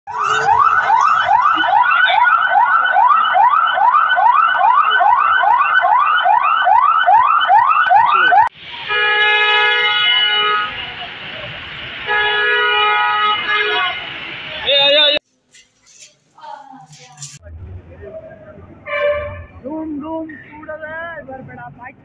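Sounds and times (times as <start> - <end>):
siren yelping: 0.1 - 8.5
steady horn blast: 18.8 - 19.8.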